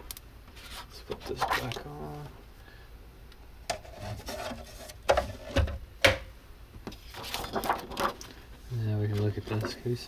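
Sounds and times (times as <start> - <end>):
plastic sheets rubbing and rustling: 3.8 - 5.6, 6.9 - 10.0.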